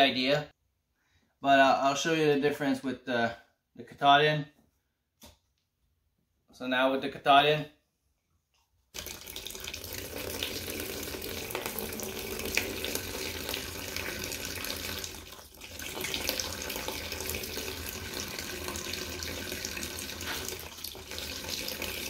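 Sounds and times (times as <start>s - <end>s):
water pouring into plastic tub: 9.0s - 22.0s.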